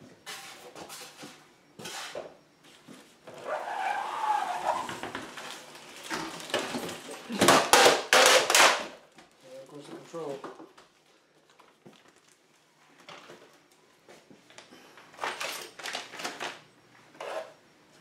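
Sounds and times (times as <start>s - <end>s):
wavering squeak of rubbing: 3.3s - 5.0s
plastic bag crinkling: 11.5s - 12.6s.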